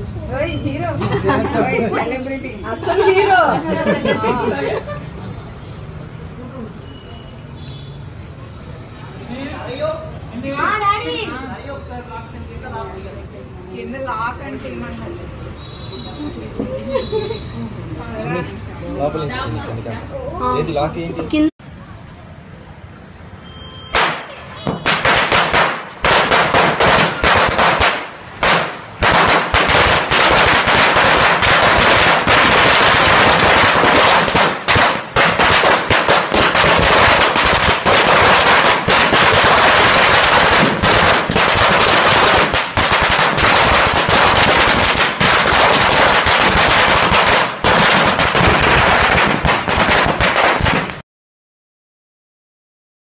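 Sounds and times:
firecrackers banging: 23.9s - 51.0s.

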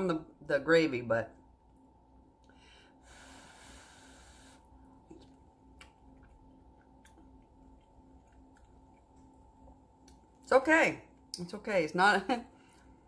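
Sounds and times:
faint hiss: 3.0s - 4.6s.

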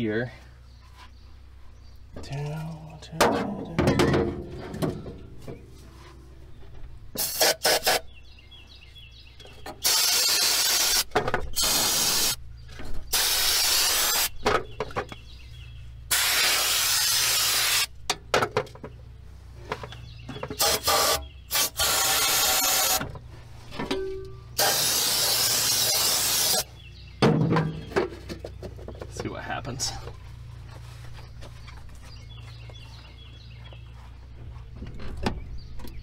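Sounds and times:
aerosol can spraying: 9.8s - 12.4s, 13.2s - 14.3s, 16.1s - 17.9s, 20.6s - 23.0s, 24.6s - 26.7s.

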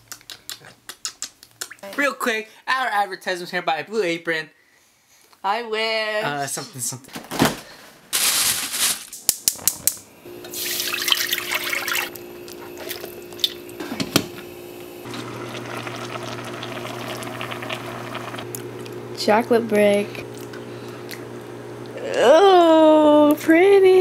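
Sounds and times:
kitchen tap running water: 10.4s - 18.5s.

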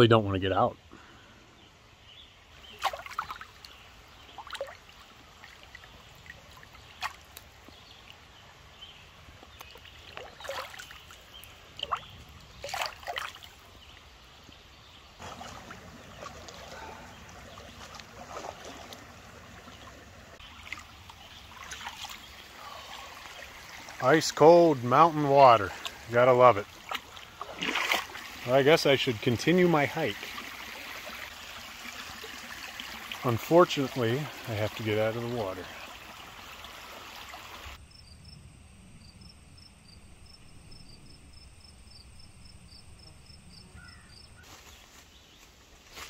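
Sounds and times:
small water splashes and drips: 2.5s - 14.6s, 15.2s - 37.8s
water trickling: 2.6s - 14.3s, 14.9s - 37.8s.

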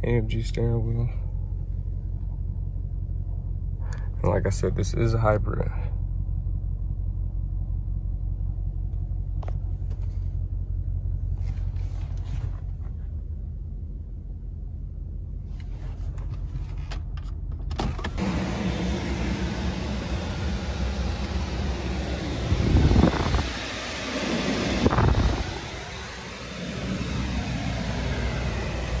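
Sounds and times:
car engine idling: 0.0s - 29.0s
steady rushing noise: 18.2s - 29.0s.

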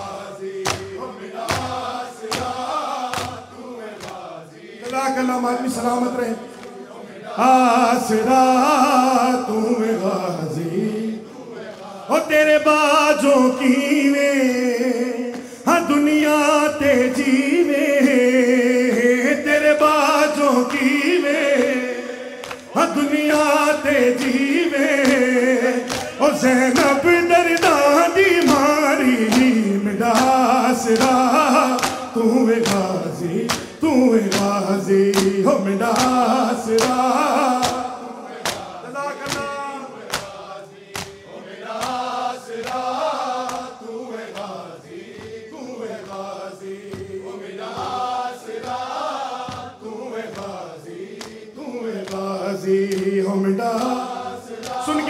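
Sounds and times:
hands slapping bare chests: 0.0s - 5.0s, 22.4s - 22.8s, 24.2s - 45.4s, 46.9s - 53.2s, 53.8s - 54.8s
men singing a lament in chorus: 0.0s - 55.0s.

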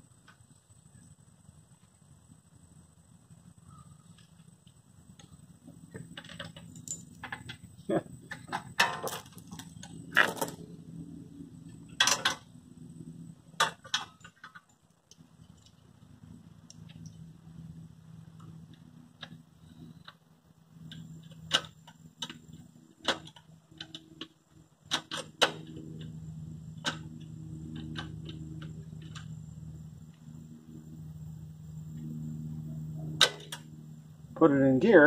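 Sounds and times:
low hum: 0.0s - 35.0s
metal chain clinking: 6.2s - 7.5s.

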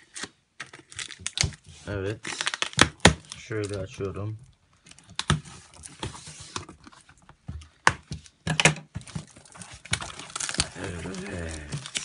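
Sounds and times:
plastic bag and cardboard rustling: 0.8s - 12.0s
sharp snaps and cracks: 2.2s - 4.1s, 8.6s - 12.0s.

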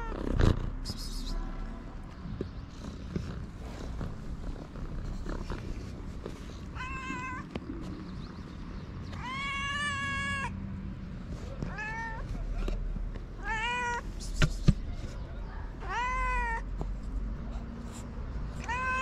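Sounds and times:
cats meowing: 0.0s - 0.4s, 6.4s - 8.0s, 9.0s - 10.6s, 11.6s - 14.4s, 15.7s - 16.8s, 18.5s - 19.0s.

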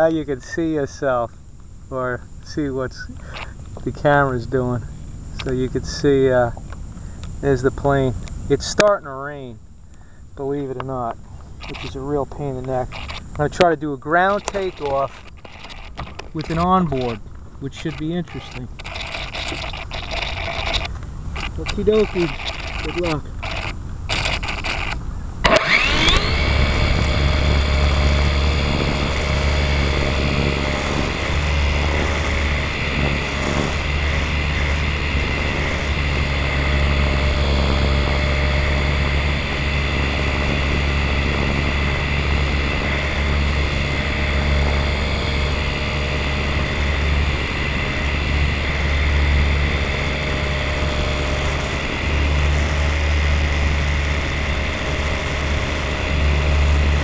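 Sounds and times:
model airplane motor whine: 0.0s - 57.0s
wind on microphone: 10.7s - 57.0s.

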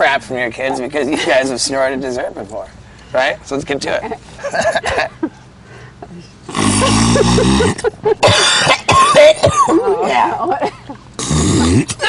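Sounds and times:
person coughing: 6.6s - 9.8s.

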